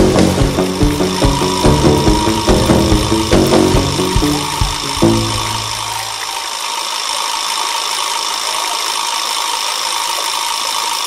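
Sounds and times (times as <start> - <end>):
low music note: 0.0 - 6.1
fountain water jets spraying: 0.0 - 11.0.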